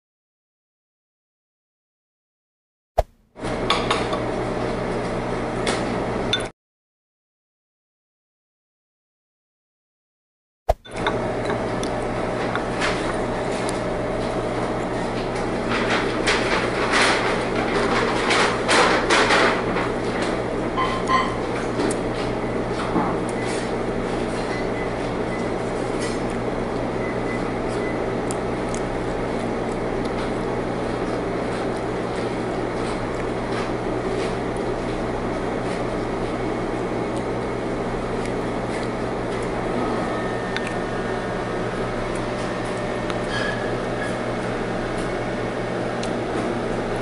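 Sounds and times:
restaurant background hum: 3.0 - 6.5, 10.7 - 47.0
air handling hum: 10.7 - 16.4.

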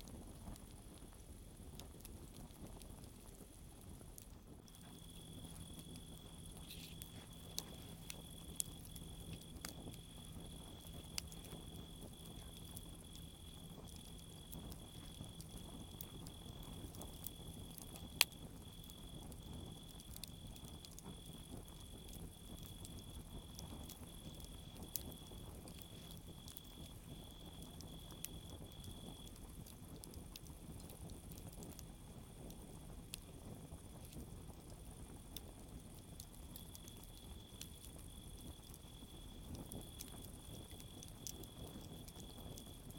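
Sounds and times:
bonfire crackling and popping: 0.0 - 42.9
cricket chirping: 4.7 - 30.5, 35.9 - 42.9.

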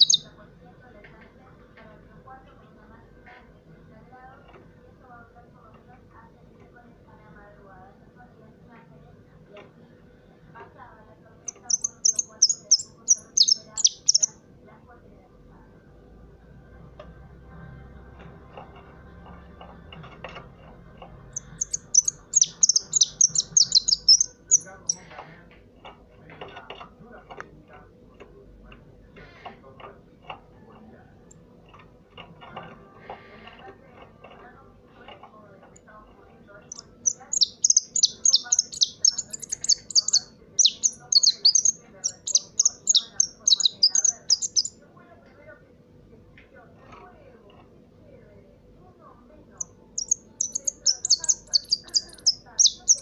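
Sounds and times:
songbird singing high chirps: 0.0 - 0.3, 11.4 - 14.4, 21.4 - 25.0, 36.7 - 44.8, 49.6 - 53.0.

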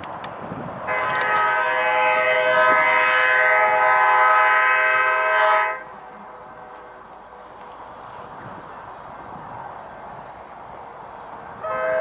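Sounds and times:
locomotive air horn: 0.9 - 7.8, 11.6 - 12.0.

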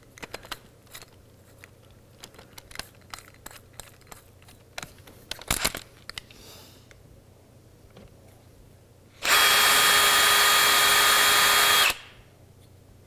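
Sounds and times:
drill chuck clicking and rattling: 9.2 - 12.0.

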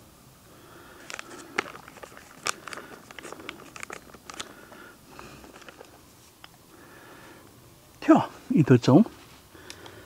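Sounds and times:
plastic packet crinkling: 0.9 - 6.1.

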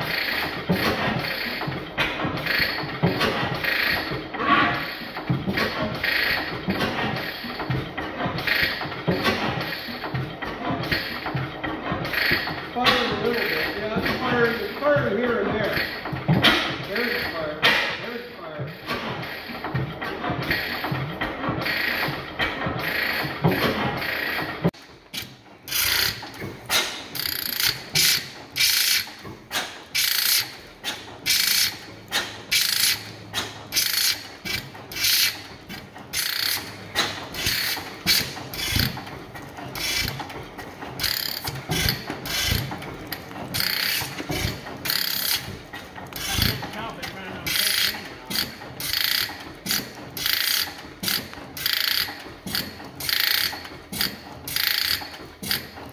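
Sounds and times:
engine valve gear clicking: 18.8 - 55.9.

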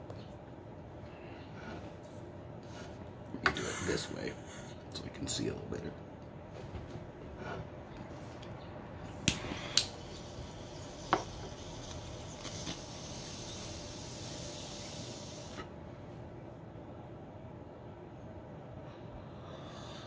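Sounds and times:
steady hiss: 9.0 - 15.7.

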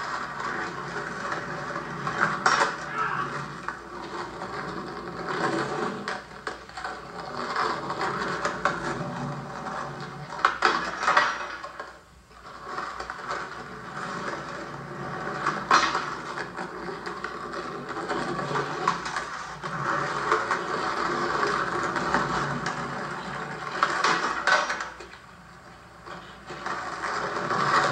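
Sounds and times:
skateboard clacks: 0.0 - 27.9
skateboard wheels rolling on pavement: 0.0 - 27.9.

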